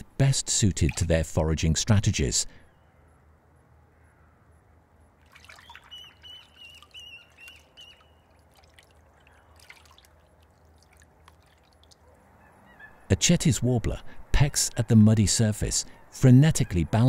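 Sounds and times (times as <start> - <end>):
shallow water splashing and dripping: 0.7 - 1.3, 5.2 - 12.2.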